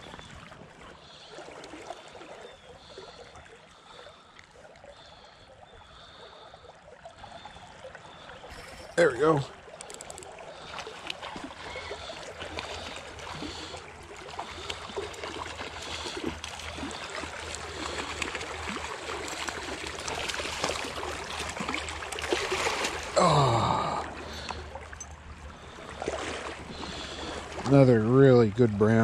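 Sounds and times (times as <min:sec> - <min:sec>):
flowing water rushing: 0:00.0 - 0:29.0
fish splashing at water surface: 0:09.6 - 0:27.7.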